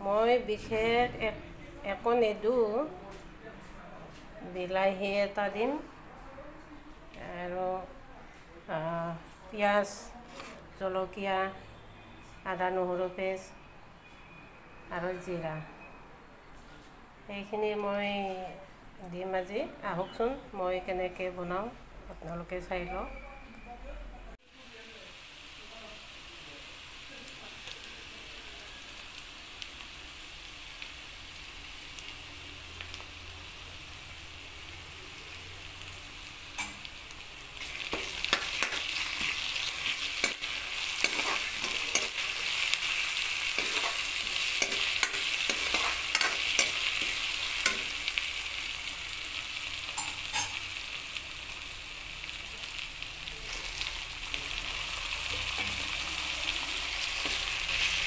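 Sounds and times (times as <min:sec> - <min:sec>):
vegetables sizzling in hot oil: 0:24.4 - 0:58.0
spatula scraping a pan: 0:37.6 - 0:48.1.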